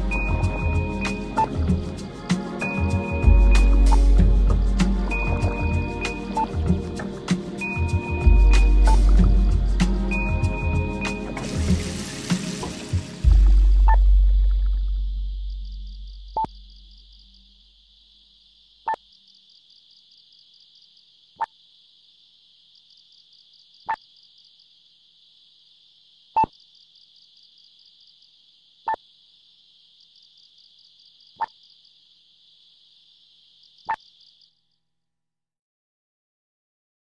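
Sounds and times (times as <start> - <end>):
low drone: 0.0 - 17.4
crickets trilling: 0.0 - 34.8.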